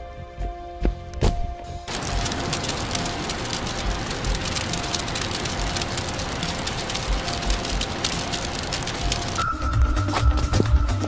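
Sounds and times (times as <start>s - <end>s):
rain pattering on leaves: 1.9s - 11.0s.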